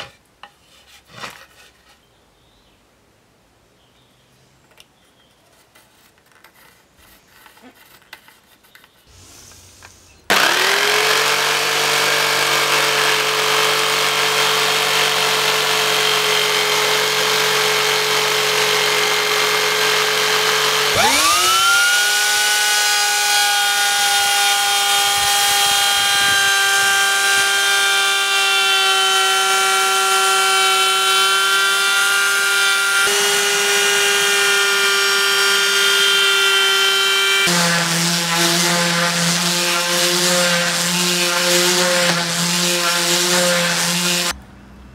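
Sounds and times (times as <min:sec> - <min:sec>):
electric router running: 0:10.3 - 0:44.4
jigsaw cutting wood: 0:10.3 - 0:44.4.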